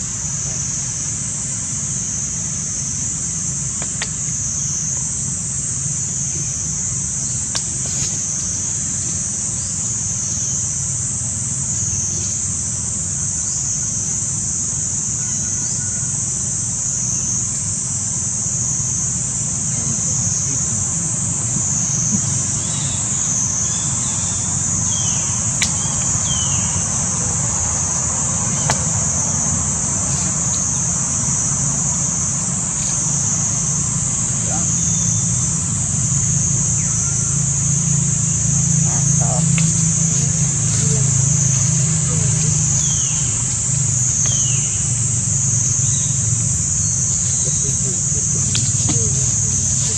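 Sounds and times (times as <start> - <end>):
high-pitched cicada chorus: 0.0 - 49.9
low steady rumble: 16.3 - 49.9.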